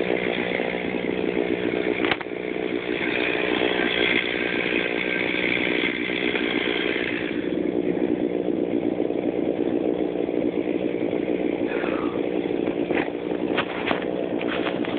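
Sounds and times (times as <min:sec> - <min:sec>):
chainsaw idling: 0:00.0 - 0:14.9.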